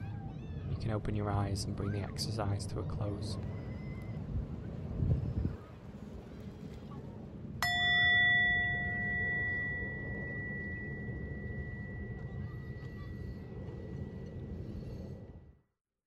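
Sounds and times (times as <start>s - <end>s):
steady low rumble: 0.0s - 15.6s
meditation bell ringing: 7.6s - 14.6s.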